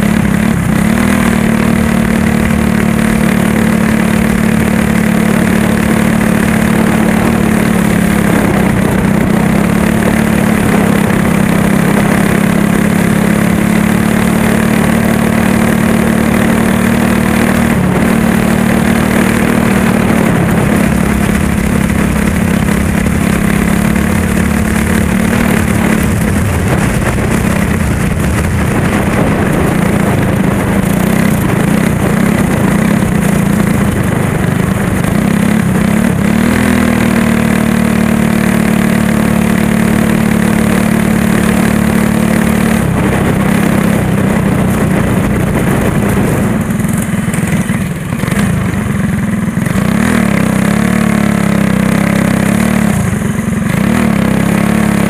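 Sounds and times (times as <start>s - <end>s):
go-kart engine running: 0.0s - 55.0s.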